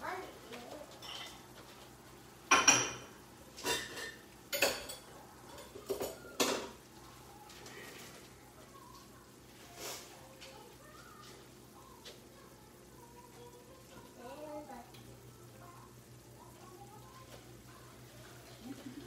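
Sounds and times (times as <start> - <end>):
dishes and utensils clattering: 0.9 - 1.8, 2.5 - 6.8.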